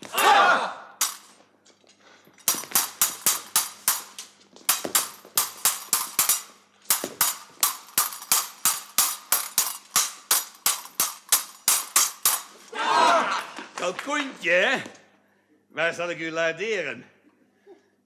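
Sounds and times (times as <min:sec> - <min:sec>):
swords clashing: 0:00.0 - 0:01.4, 0:02.4 - 0:12.8.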